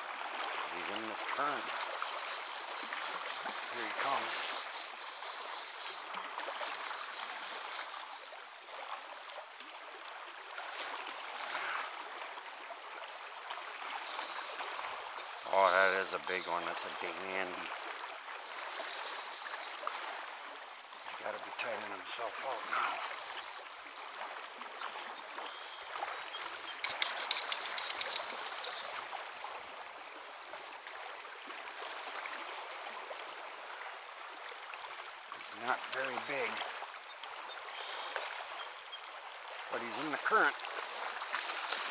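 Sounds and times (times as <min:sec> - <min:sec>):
river current rushing: 0:00.0 - 0:41.9
crackling clicks: 0:26.7 - 0:28.8.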